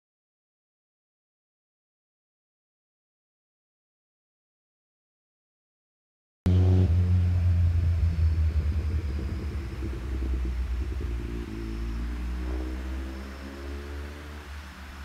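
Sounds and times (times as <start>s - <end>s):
engine rumbling: 6.5s - 15.0s.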